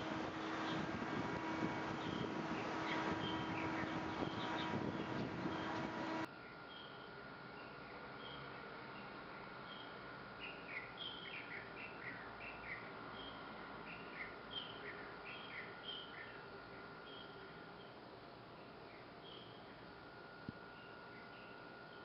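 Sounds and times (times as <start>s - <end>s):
outdoor hiss: 0.0s - 6.3s
small birds chirping: 0.0s - 19.9s.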